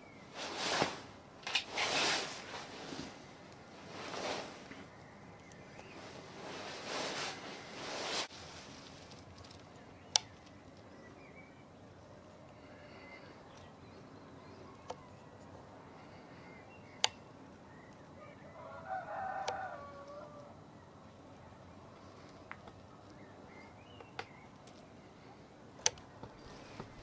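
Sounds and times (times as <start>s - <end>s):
sharp clicks: 9.3s - 10.9s, 16.9s - 17.3s, 25.8s - 26.4s
rooster crowing: 18.2s - 20.7s.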